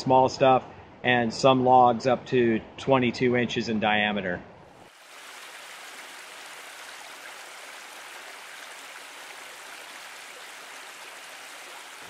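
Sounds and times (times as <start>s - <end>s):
running water rushing: 4.8s - 12.0s.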